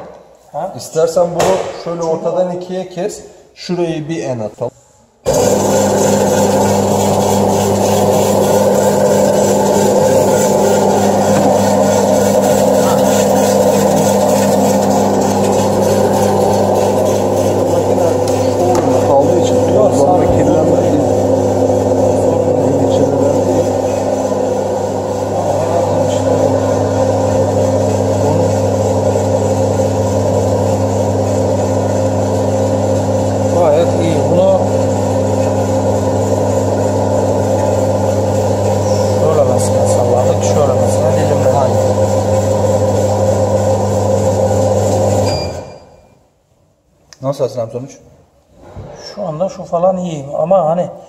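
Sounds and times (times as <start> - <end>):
food slicer motor hum: 5.3 - 45.8.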